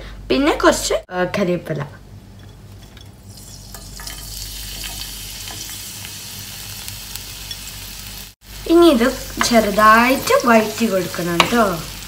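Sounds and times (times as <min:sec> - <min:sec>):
hot oil sizzling: 0:03.0 - 0:12.0.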